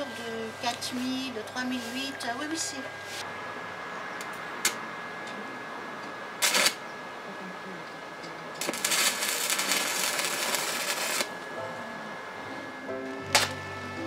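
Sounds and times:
arc welding crackling: 0:00.0 - 0:03.4, 0:06.0 - 0:06.9, 0:08.2 - 0:14.0
electrode striking metal: 0:08.6 - 0:14.0.

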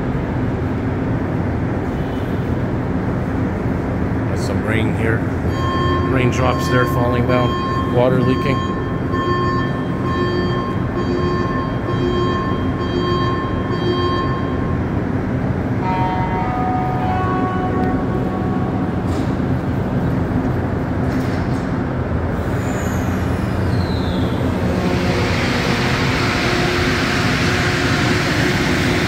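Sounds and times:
train rumbling at station: 0:00.0 - 0:29.0
brief tones: 0:05.5 - 0:14.8.

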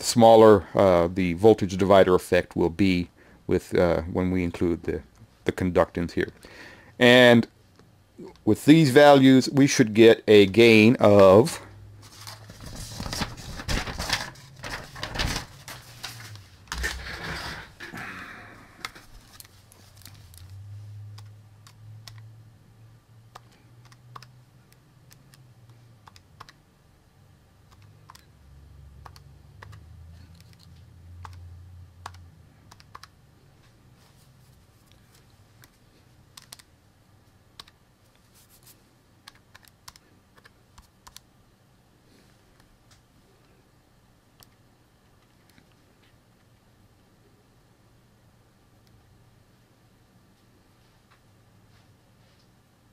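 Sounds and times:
keys typing clicks: 0:21.1 - 0:22.3, 0:23.3 - 0:26.6, 0:27.7 - 0:28.3, 0:29.0 - 0:31.4, 0:32.0 - 0:33.2, 0:36.3 - 0:36.7, 0:39.2 - 0:41.2.

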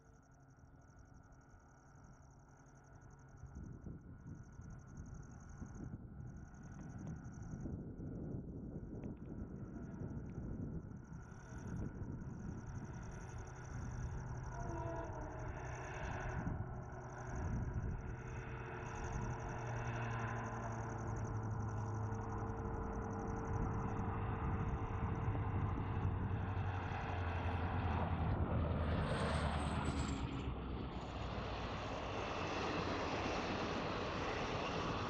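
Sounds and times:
diesel locomotive engine drone: 0:00.0 - 0:35.0
rail and wheel noise: 0:09.6 - 0:35.0.

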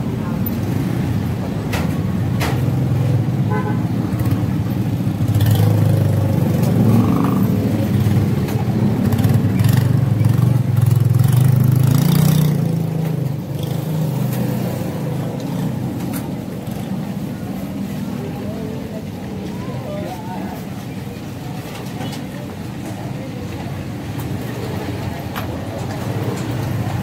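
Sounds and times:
vehicle engine rumbling: 0:00.0 - 0:27.0.

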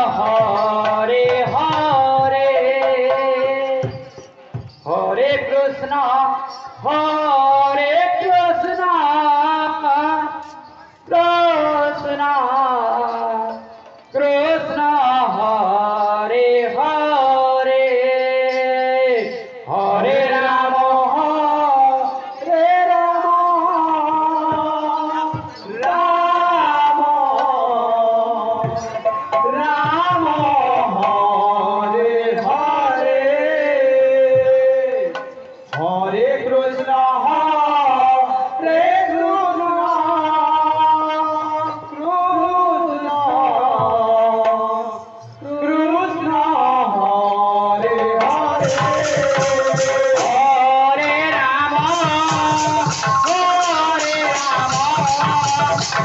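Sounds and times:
barrel drum: 0:00.0 - 0:05.5, 0:48.2 - 0:50.8, 0:51.7 - 0:56.0
man singing devotional song: 0:00.0 - 0:56.0.

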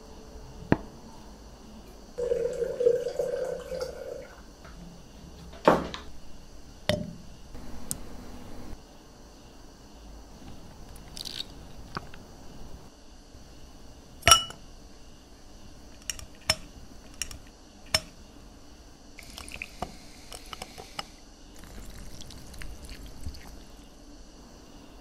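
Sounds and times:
sparkling water fizzing: 0:02.2 - 0:04.2, 0:19.2 - 0:21.0, 0:21.6 - 0:23.8
liquid pouring into a glass: 0:02.2 - 0:04.4, 0:19.2 - 0:19.8, 0:21.6 - 0:23.8
ice clinking in a glass: 0:14.3 - 0:14.6.

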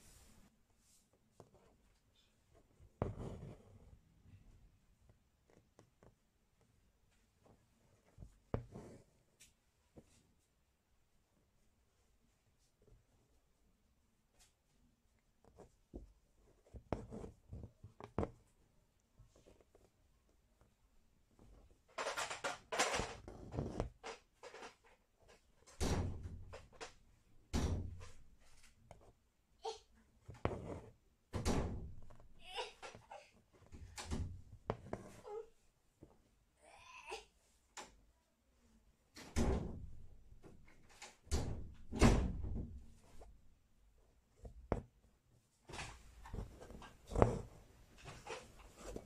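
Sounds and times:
dull thumps on taut cloth: 0:46.3 - 0:47.6.

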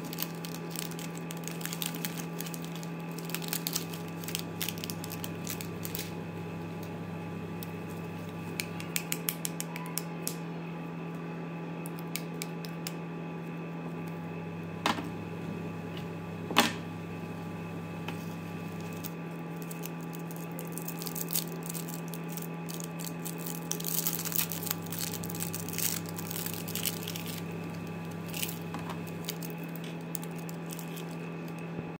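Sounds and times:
candy wrappers crinkling: 0:00.0 - 0:06.2, 0:18.1 - 0:31.7
low electrical hum: 0:00.0 - 0:32.0.

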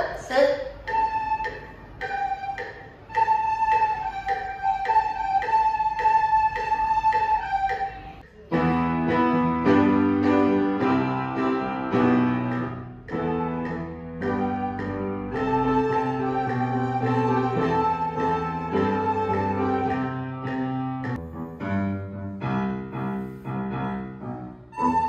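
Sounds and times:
metronome ticking: 0:00.0 - 0:08.3, 0:09.6 - 0:21.5
piano accompaniment: 0:00.7 - 0:25.0
children playing recorders: 0:00.8 - 0:08.2, 0:13.1 - 0:20.7, 0:24.7 - 0:25.0.

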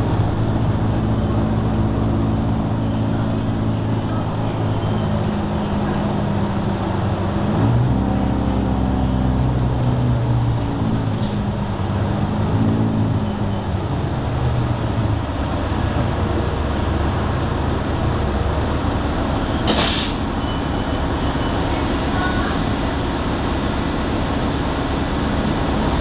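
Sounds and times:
bus engine and road rumble: 0:00.0 - 0:26.0
short hiss of air: 0:19.7 - 0:20.2.

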